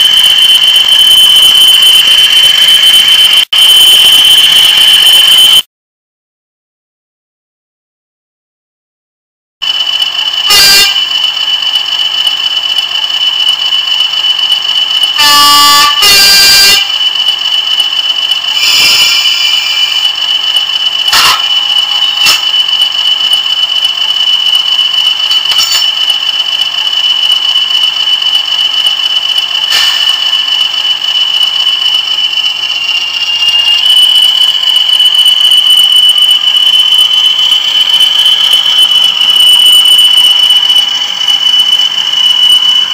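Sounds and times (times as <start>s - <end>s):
model locomotive engine whine: 0.0s - 5.6s, 9.6s - 42.9s
horn blasts: 10.5s - 11.1s, 15.2s - 16.9s.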